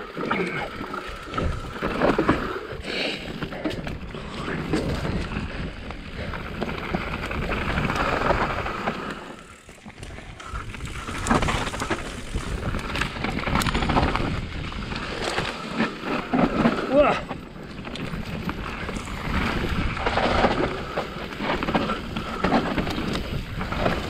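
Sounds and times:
bike tyre noise on dirt: 0:00.0 - 0:24.0
wind on microphone: 0:09.6 - 0:17.2, 0:17.8 - 0:24.0.

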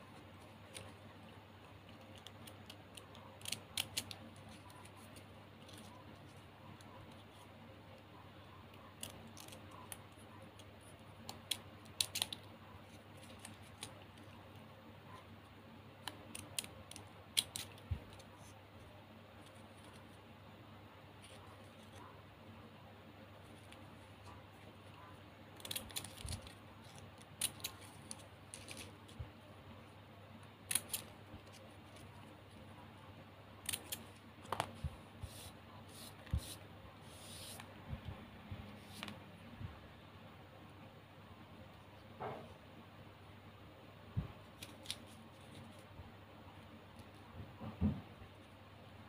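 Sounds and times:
scissors snipping plastic ribbon: 0:25.6 - 0:28.9, 0:30.7 - 0:32.0.

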